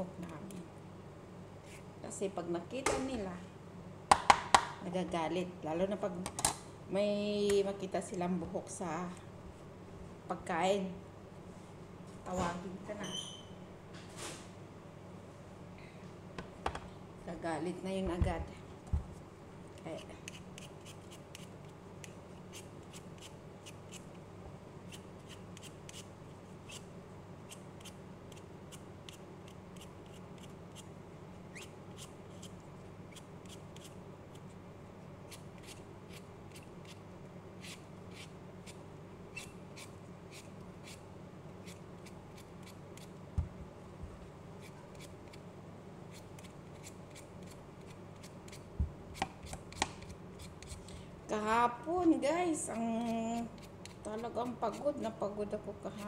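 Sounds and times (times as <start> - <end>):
low steady hum: 0.0 - 56.0
peeler scraping potato skin: 19.8 - 24.2, 24.8 - 30.9, 31.5 - 34.6, 35.3 - 37.0, 37.6 - 41.0, 41.6 - 43.2, 46.1 - 50.9.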